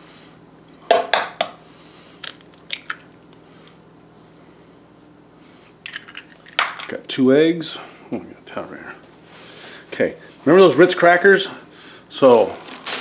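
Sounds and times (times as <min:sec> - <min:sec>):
egg shell cracking: 0:02.1 - 0:03.2, 0:05.8 - 0:07.0.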